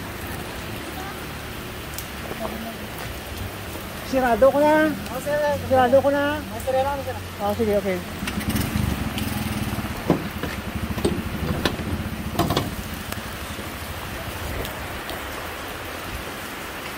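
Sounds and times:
motorcycle engine idling: 8.0s - 13.4s
sharp knocks: 10.0s - 12.9s.

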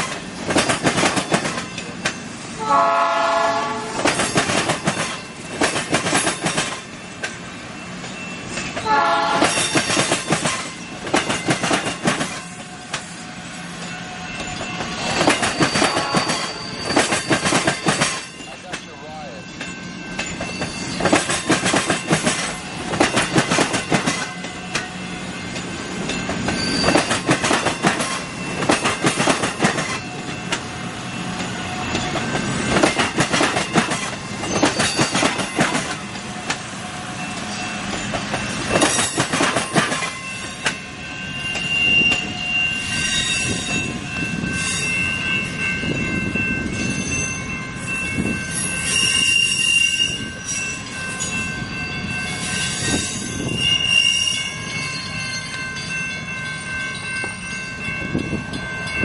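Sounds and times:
train wheels clacking over rail joints: 0.0s - 2.3s, 3.4s - 7.4s, 8.0s - 13.2s, 13.8s - 19.0s, 19.6s - 30.7s, 31.4s - 36.7s, 37.3s - 40.8s
high wheel squeal: 12.5s - 18.6s, 19.4s - 21.2s, 25.5s - 27.3s, 41.2s - 44.0s, 48.4s - 55.6s.

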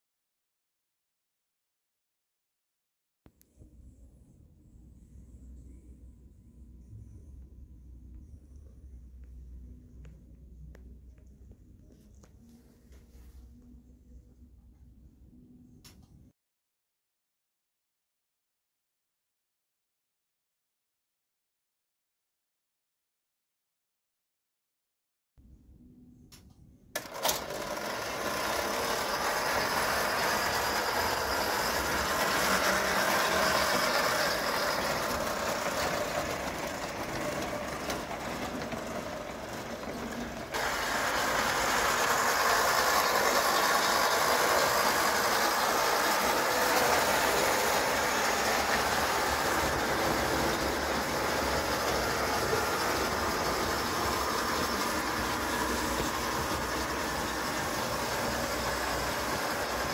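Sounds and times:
toy train running on metal track: 27.0s - 59.9s.

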